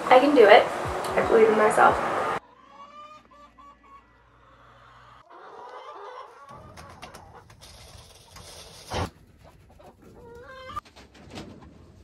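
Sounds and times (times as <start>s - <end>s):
hens clucking: 0.4s - 11.8s
dove wings flapping: 6.5s - 11.4s.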